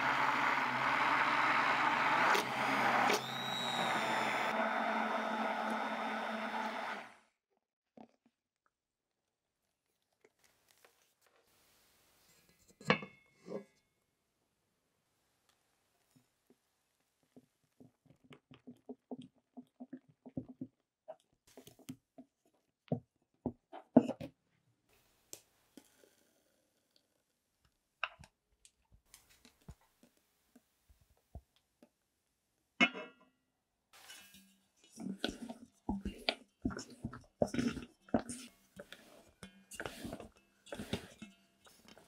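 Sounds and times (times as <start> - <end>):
spatula scraping and squelching: 34.0 - 42.0.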